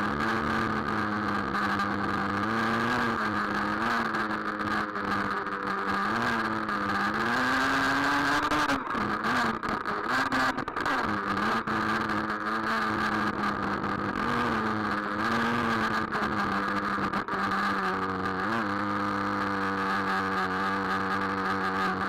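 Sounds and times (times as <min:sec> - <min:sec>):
small nitro engine revving: 0:00.0 - 0:22.0.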